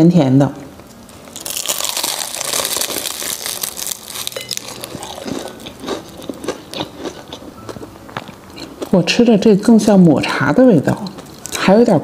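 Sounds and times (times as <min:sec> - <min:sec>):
crunching pastry while chewing: 0:01.2 - 0:09.0.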